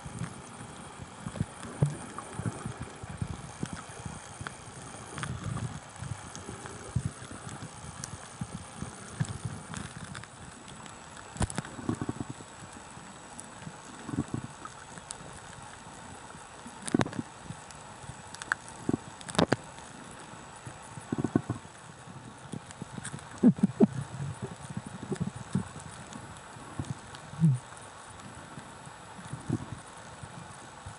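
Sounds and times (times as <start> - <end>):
underwater knocks and clicks: 0.1 - 12.6, 14.0 - 15.2, 16.8 - 19.6, 21.0 - 21.8, 22.5 - 27.7
underwater hiss: 0.1 - 13.1.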